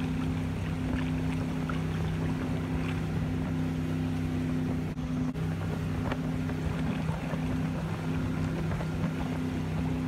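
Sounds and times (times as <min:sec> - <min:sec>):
churning wake rushing: 0:00.0 - 0:10.0
motorboat engine droning: 0:00.0 - 0:10.0
wind on microphone: 0:00.0 - 0:10.0.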